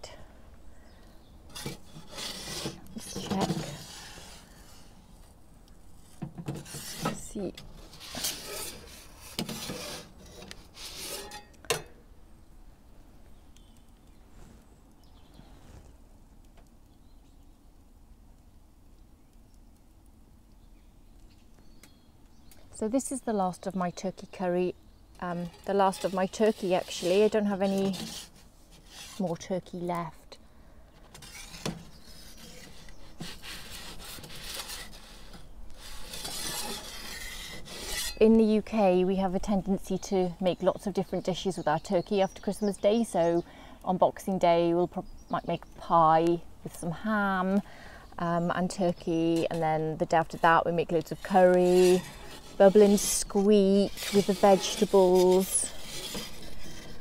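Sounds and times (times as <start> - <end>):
faint outdoor background: 0.0 - 57.0
metal peel scraping on stone: 1.5 - 5.0, 6.0 - 12.0, 25.3 - 29.5, 31.1 - 38.6, 48.8 - 57.0.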